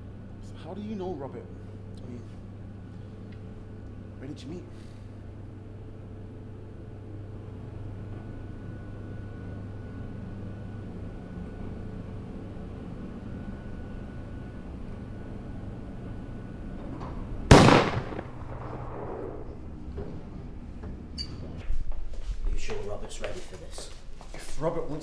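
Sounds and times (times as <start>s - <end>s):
steady low hum: 0.0s - 25.0s
sudden loud bang: 17.5s - 19.6s.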